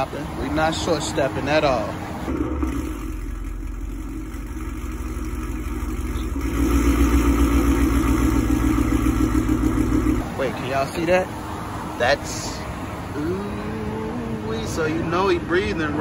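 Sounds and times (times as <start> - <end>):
car engine idling: 0.0 - 15.2.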